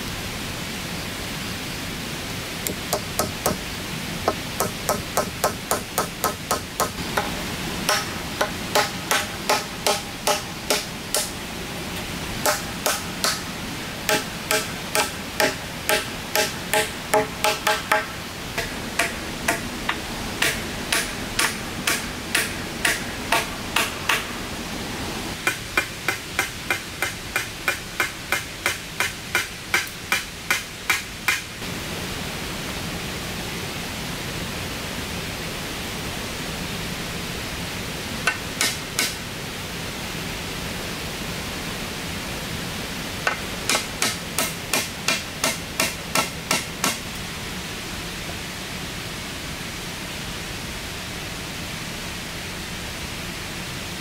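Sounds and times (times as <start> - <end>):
steady hiss: 0.0 - 54.0
hand tool striking: 2.7 - 3.6, 4.3 - 11.4, 12.4 - 13.5, 14.1 - 24.3, 25.4 - 31.5, 38.3 - 39.2, 43.3 - 47.0.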